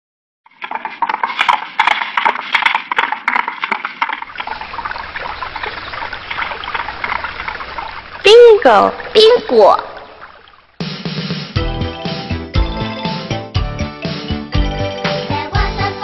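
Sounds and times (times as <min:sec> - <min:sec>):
flowing stream: 0:00.5 - 0:10.9
horse hoofbeats: 0:00.5 - 0:11.0.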